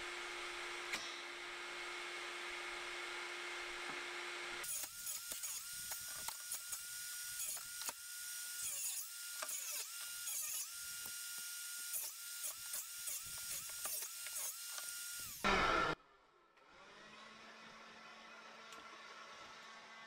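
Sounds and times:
small electric motor whirring: 4.6s - 16.0s.

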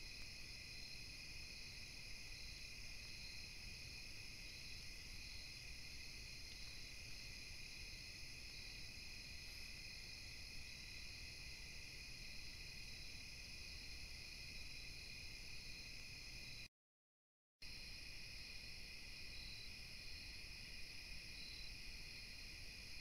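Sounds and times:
crickets and insects trilling: 17.7s - 23.0s.

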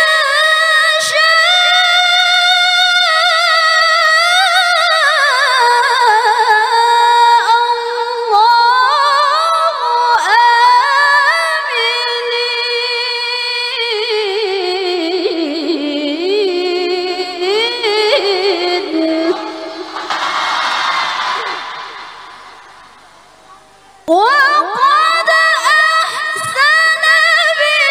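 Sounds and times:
woman chanting into a microphone: 0.0s - 19.9s, 24.0s - 27.9s.

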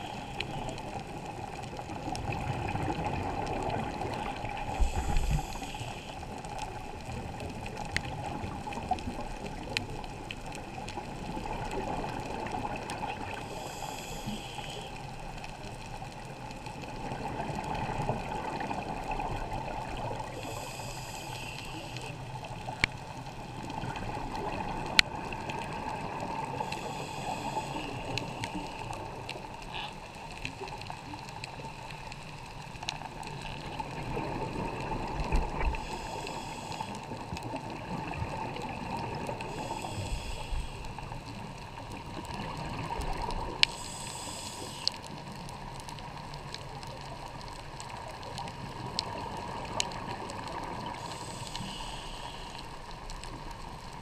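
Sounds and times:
diver breathing through regulator: 0.0s - 1.0s, 4.6s - 6.3s, 13.4s - 15.1s, 20.2s - 22.2s, 26.6s - 29.0s, 35.6s - 37.2s, 39.4s - 41.1s, 43.6s - 45.1s, 50.8s - 53.0s.

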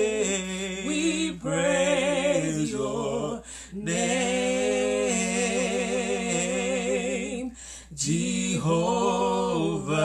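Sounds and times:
man and woman singing: 0.0s - 10.0s.

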